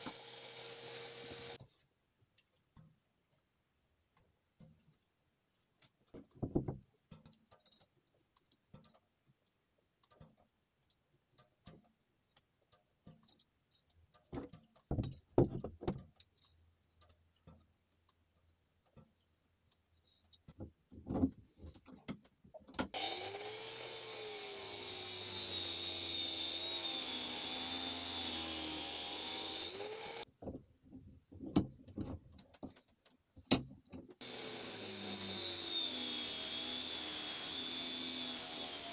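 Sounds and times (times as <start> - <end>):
angle grinder cutting steel: 0.0 - 1.6, 23.0 - 30.3, 34.2 - 38.9.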